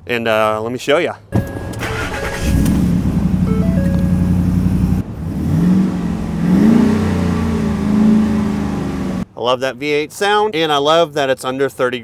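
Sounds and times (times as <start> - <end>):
car engine revving: 1.4 - 9.2
car engine starting and idling: 1.4 - 9.2.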